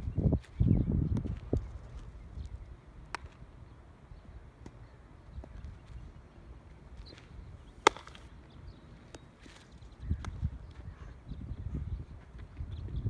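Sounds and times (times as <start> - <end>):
wind on microphone: 0.0 - 3.4, 9.8 - 13.0
baseball bat crack: 3.1 - 3.4, 7.8 - 8.3.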